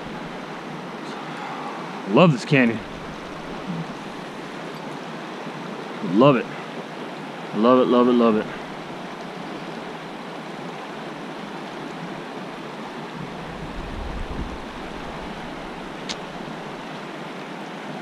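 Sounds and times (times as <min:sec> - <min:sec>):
river rushing over boulders: 0:00.0 - 0:18.0
wind buffeting microphone: 0:13.2 - 0:16.8.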